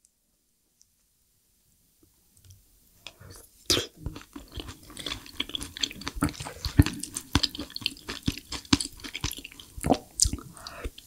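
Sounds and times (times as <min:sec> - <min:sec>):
wet chewing mouth smacks: 0:03.7 - 0:11.0.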